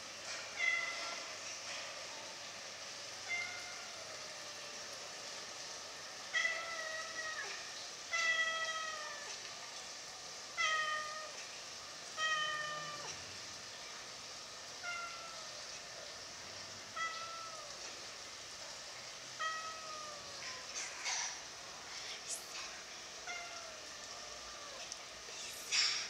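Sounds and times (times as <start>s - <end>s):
cat meowing: 10.6s - 11.4s, 12.2s - 13.2s, 14.8s - 15.6s, 16.9s - 17.9s, 19.4s - 20.7s, 23.2s - 24.9s.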